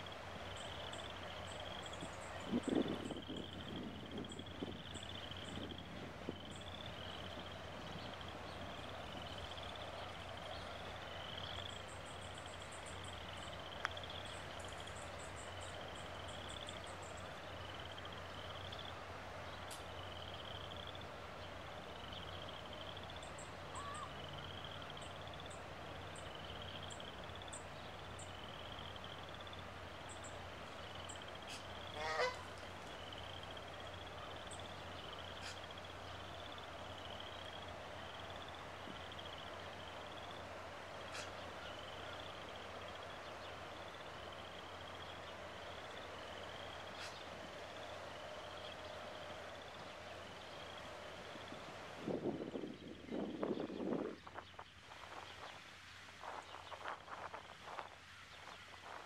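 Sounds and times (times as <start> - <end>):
goose honking: 31.5 - 32.6.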